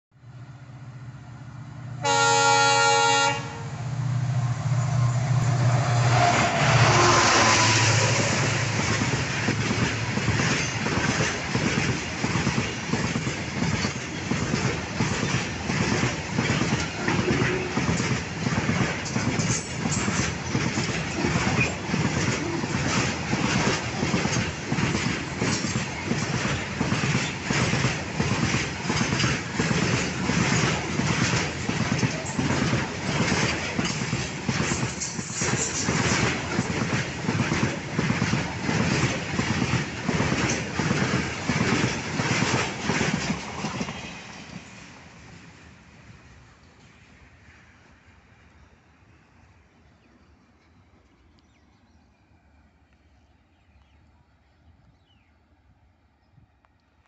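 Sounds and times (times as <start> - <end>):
freight train passing: 0.1 - 57.0
locomotive horn blast: 2.0 - 3.8, 6.0 - 8.4
wagon wheels clickety-clack: 8.9 - 44.6.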